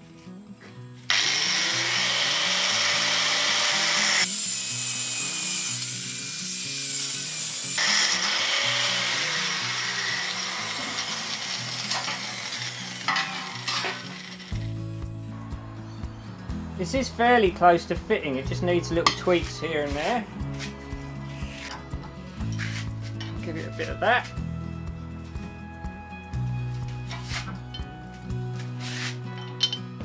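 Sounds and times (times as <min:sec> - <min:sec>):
angle grinder cutting metal: 0:01.1 - 0:14.9.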